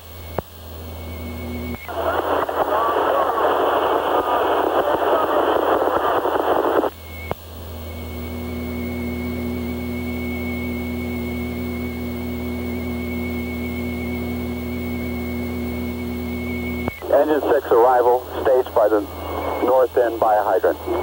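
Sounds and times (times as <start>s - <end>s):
electrical hum with high whine: 0.0s - 21.0s
two-way radio static: 1.8s - 7.0s, 16.8s - 21.0s.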